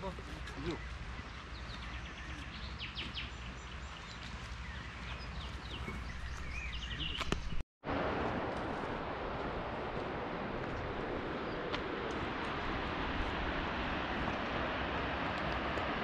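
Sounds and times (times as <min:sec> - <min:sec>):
small birds chirping: 0:00.0 - 0:07.6
wind rumble on microphone: 0:00.0 - 0:16.0
steady rushing noise: 0:07.8 - 0:16.0.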